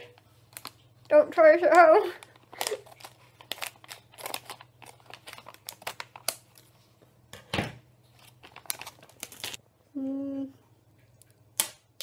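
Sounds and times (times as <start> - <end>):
plastic wrapper crinkling: 0.0 - 6.9, 8.0 - 9.6
scissors cutting plastic bag: 1.7 - 6.4, 8.2 - 9.6.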